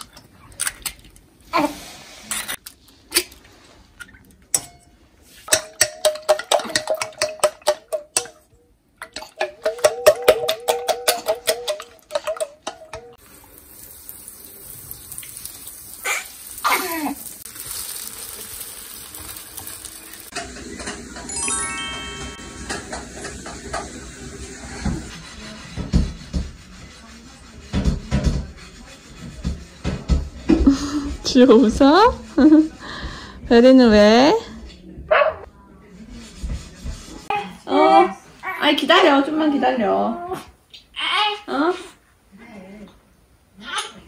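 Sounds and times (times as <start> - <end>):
chopsticks beating eggs in metal bowl: 5.5 - 8.4, 9.0 - 13.1
bread sizzling in a pan: 13.2 - 21.0.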